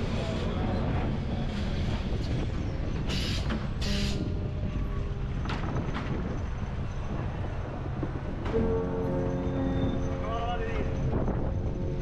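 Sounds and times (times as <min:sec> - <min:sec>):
tram passing with low rumble: 0:00.0 - 0:12.0.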